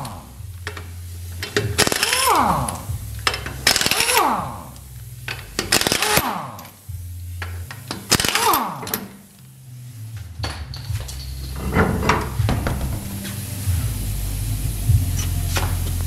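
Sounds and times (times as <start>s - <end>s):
impact wrench hammering: 0.0s - 9.2s, 10.4s - 13.4s
air motor whine: 0.0s - 16.0s.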